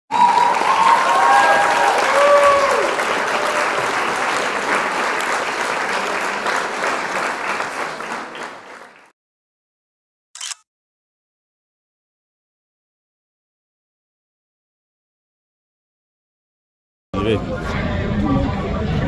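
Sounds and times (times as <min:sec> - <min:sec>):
voices cheering: 0:00.1 - 0:05.1
crowd applauding: 0:00.1 - 0:09.2.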